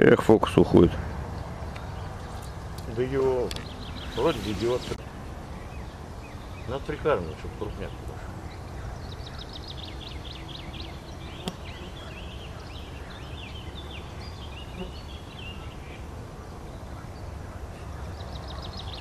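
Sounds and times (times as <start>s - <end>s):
songbirds singing: 0.0s - 19.0s.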